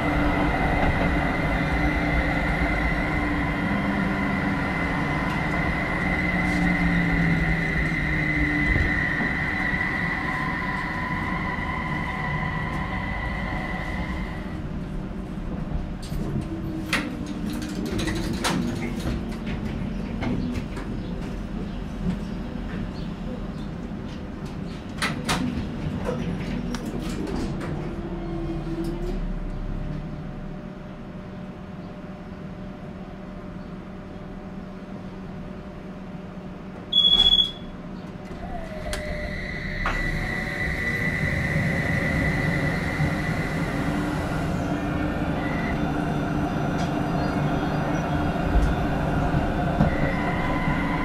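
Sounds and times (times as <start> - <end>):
tram inverter whine: 0.0 - 51.0
tram low hum: 0.0 - 51.0
tram running noise: 0.0 - 51.0
short high beep: 36.9 - 37.7
click: 38.9 - 39.1.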